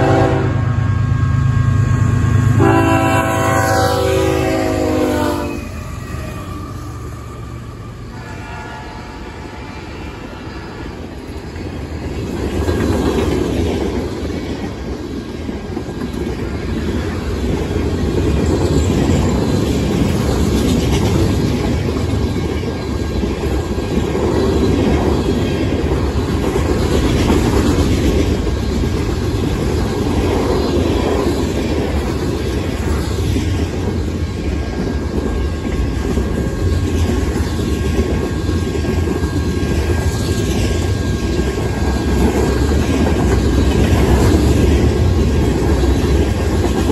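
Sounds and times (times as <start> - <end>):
locomotive horn: 0.0 - 1.1, 2.1 - 6.8, 8.1 - 10.3
freight train rumbling past: 0.0 - 46.9
train wheels clacking on rail joints: 11.0 - 46.9.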